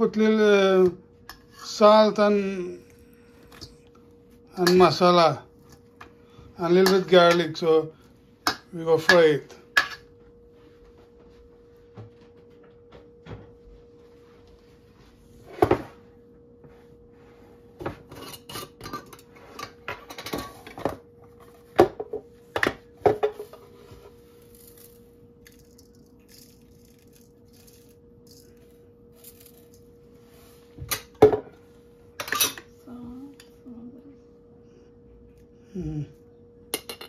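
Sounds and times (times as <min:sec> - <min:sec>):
faint steady hum: 0:00.0 - 0:37.0.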